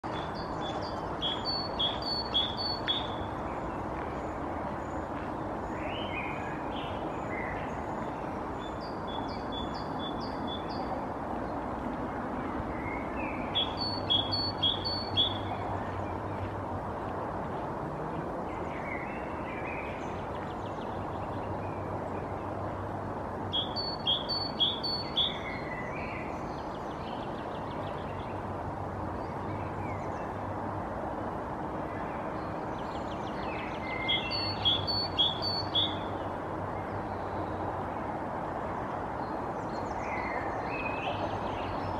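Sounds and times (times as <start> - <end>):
birds singing: 0.0 - 11.6, 12.5 - 16.5, 23.4 - 30.5, 31.9 - 37.6
lower bird chirps: 0.1 - 3.3, 12.8 - 15.6, 23.5 - 28.2, 32.4 - 36.2.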